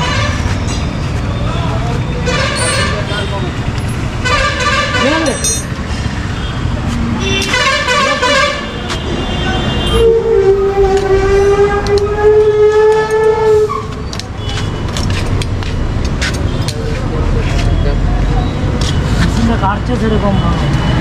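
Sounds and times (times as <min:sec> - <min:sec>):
vehicle horns: 0:00.0 - 0:00.6, 0:02.2 - 0:05.5, 0:06.1 - 0:15.2.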